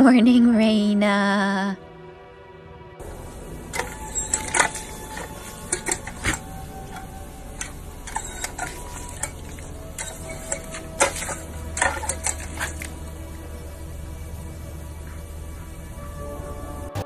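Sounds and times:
water fountain splashing: 3.0 - 15.0
irregular clicks and splats: 3.2 - 13.4.

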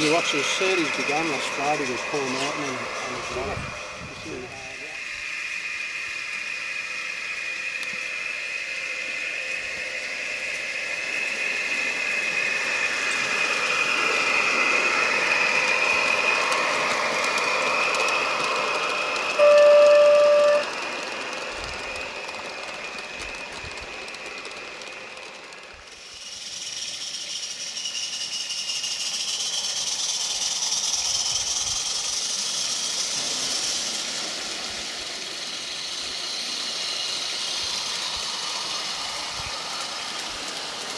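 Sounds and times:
steam locomotive hissing: 0.0 - 40.9
steam whistle blast: 19.3 - 20.8.

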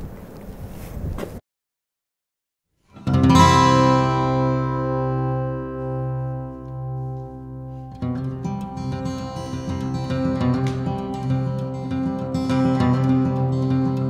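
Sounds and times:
guitar music: 2.8 - 14.0.

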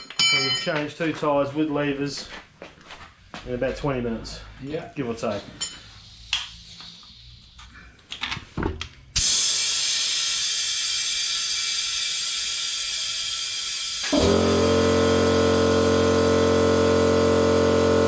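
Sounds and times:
compressed air hissing: 5.4 - 7.8
air compressor motor humming: 9.2 - 18.0.

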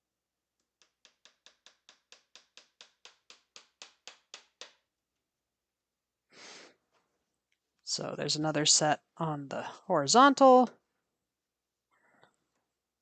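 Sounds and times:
hammer tapping tack nails: 0.7 - 4.9.

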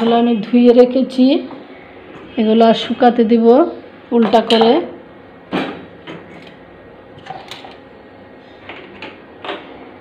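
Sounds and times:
containers clinking on a wire rack: 4.2 - 4.9.

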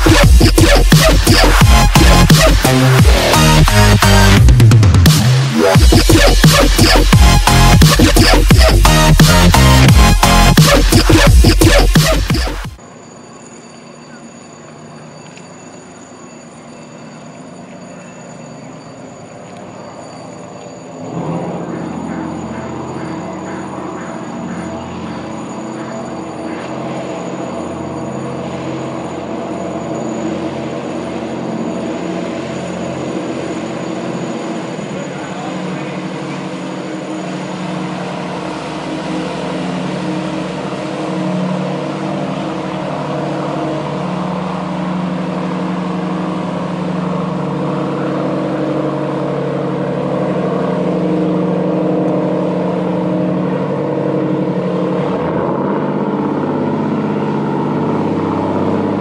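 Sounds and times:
boat engine running: 0.0 - 59.0.

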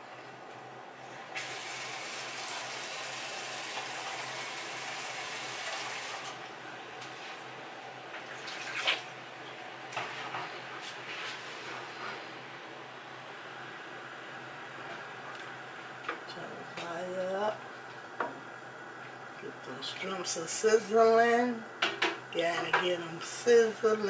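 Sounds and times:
sink tap running: 1.4 - 6.3.

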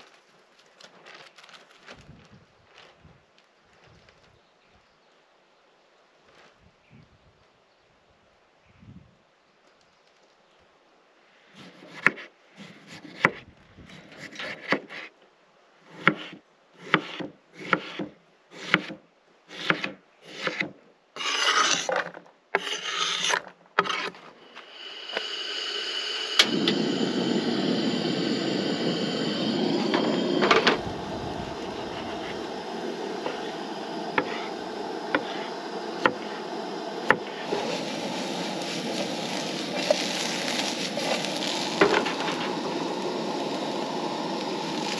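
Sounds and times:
potatoes sizzling in pan: 22.6 - 44.9.

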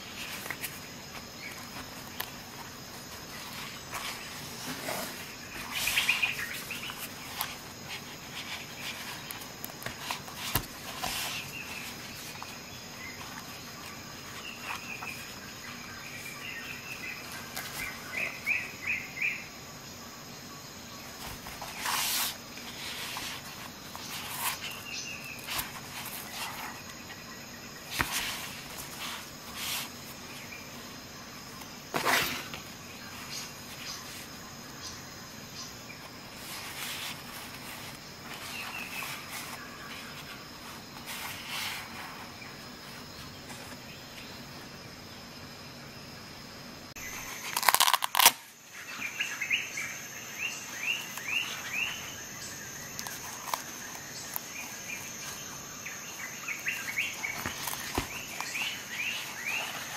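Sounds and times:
rustles and scrapes of pouches: 0.0 - 18.6, 21.1 - 27.2, 27.8 - 30.9, 31.9 - 34.3, 36.3 - 43.8, 56.7 - 59.9
high insect hum: 0.0 - 59.9.

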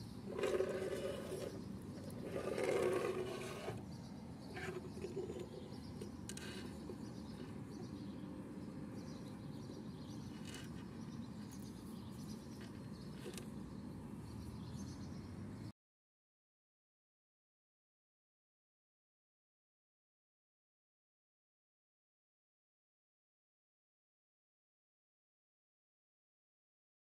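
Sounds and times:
toy scraping on wooden table: 0.3 - 3.9, 4.5 - 7.6, 10.2 - 11.0.

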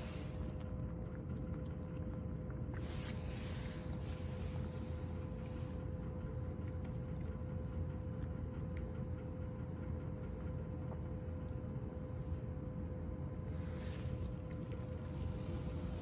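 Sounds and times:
appliance humming: 0.0 - 16.0
cat chewing: 0.0 - 16.0
soft rustling: 2.8 - 5.8, 13.5 - 16.0.

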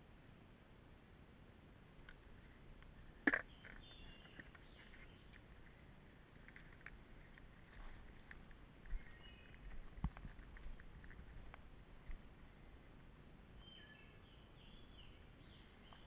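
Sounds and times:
small clicks and knocks of tools: 6.4 - 12.2.

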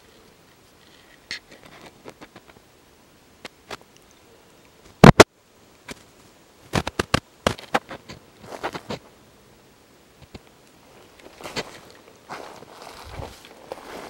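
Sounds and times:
footsteps crunching on twigs: 10.9 - 14.0.

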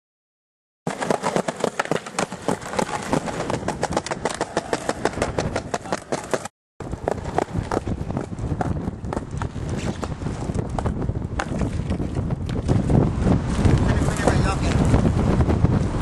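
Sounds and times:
skateboard wheels clacking on tiles: 0.9 - 9.6.

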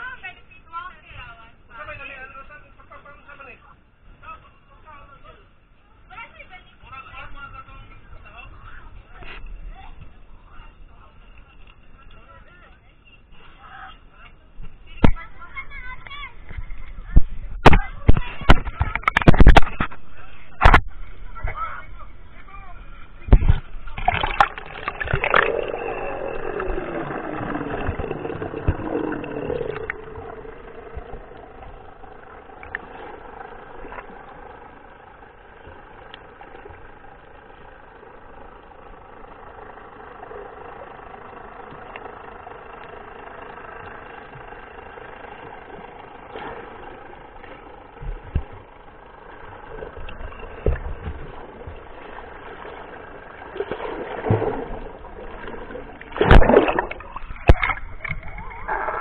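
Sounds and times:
boat engine hum underwater: 0.0 - 59.0
water rushing and bubbling: 23.0 - 36.9, 45.6 - 59.0.

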